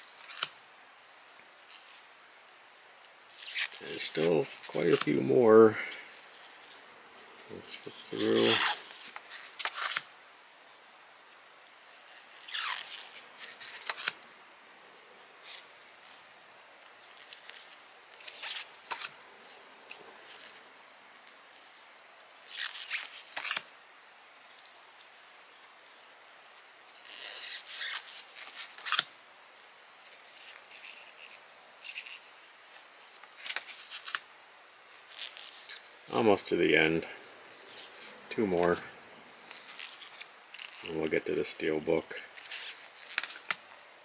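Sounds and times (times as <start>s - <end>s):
cards scraping together: 7.4s - 10.1s, 12.4s - 14.2s, 17.1s - 19.2s, 22.5s - 23.7s, 39.5s - 41.7s, 42.4s - 43.7s.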